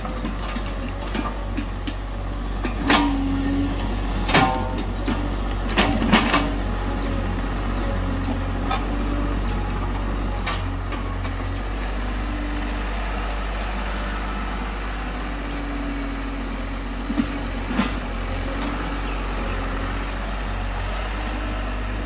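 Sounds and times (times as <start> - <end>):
excavator engine running: 0.0 - 22.0.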